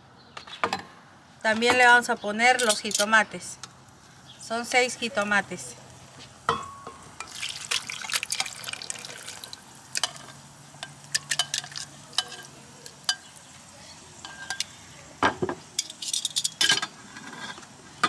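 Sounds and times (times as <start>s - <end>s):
metal tongs clicking and scraping: 2.6s - 3.1s, 10.0s - 13.3s, 15.8s - 16.9s
liquid pouring into blender jar: 7.3s - 9.5s.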